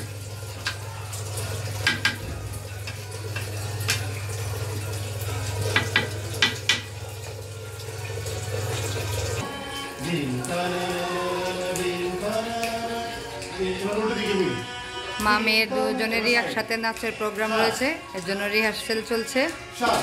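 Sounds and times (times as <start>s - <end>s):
spatula knocking against pot: 1.8s - 2.4s, 5.7s - 6.9s.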